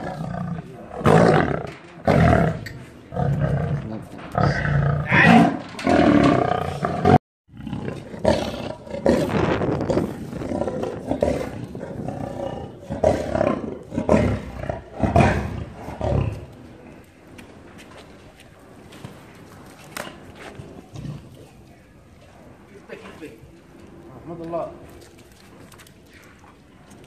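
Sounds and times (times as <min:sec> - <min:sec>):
lion roaring: 0:00.0 - 0:16.6.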